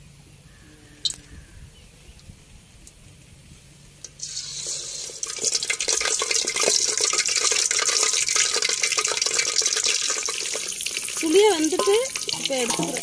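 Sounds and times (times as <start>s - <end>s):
hot oil sizzling and crackling: 4.0s - 13.0s.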